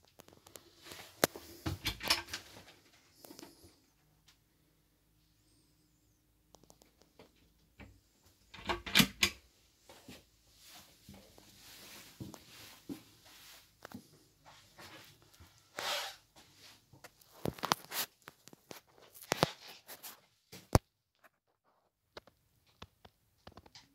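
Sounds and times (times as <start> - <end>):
rustling: 9.9 - 20.4.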